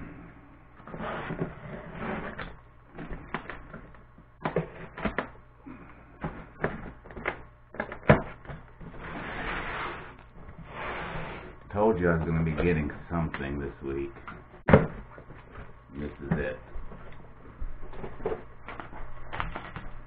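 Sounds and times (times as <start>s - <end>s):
cardboard crackles and clicks: 17.9s - 20.0s.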